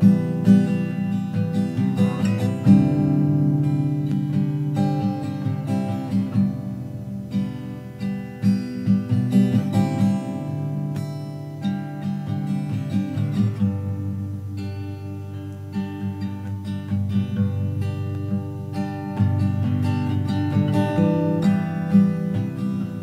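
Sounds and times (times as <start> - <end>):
acoustic guitar music: 0.0 - 23.0.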